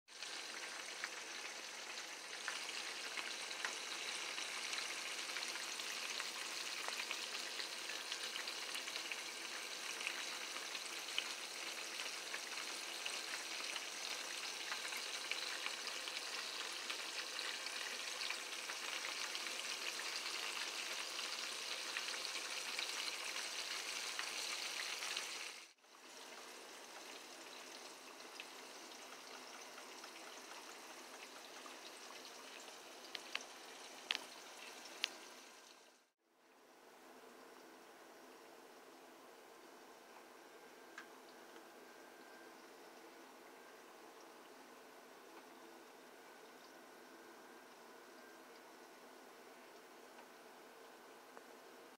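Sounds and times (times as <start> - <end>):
fish frying in hot oil: 0.1 - 36.1, 39.7 - 51.8.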